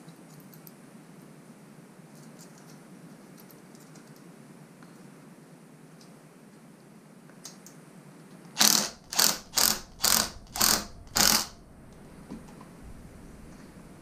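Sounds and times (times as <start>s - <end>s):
cordless power driver bursts: 8.5s - 11.6s.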